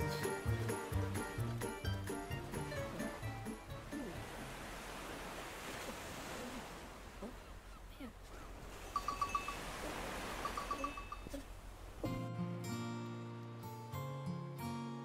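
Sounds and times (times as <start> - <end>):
surf washing on a beach: 0.0 - 7.6, 8.5 - 12.1.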